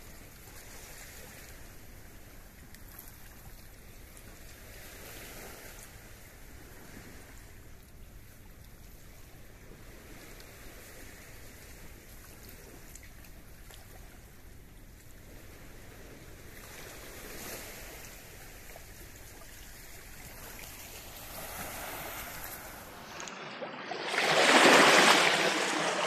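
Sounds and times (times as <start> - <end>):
river water rushing: 20.2 - 26.0.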